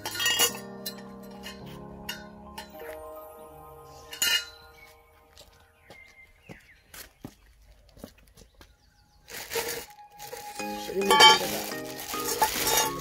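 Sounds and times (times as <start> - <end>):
metal clank: 0.0 - 2.8
metal tubes clinking on concrete: 0.0 - 2.8, 9.6 - 13.0
faint background music: 0.0 - 7.4, 8.6 - 13.0.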